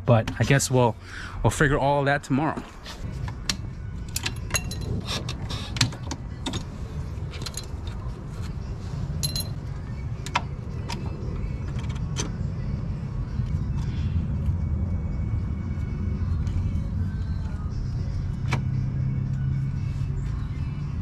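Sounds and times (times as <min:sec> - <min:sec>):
steady low rumble: 0:00.0 - 0:21.0
metal clicks of hand tools: 0:03.3 - 0:06.7.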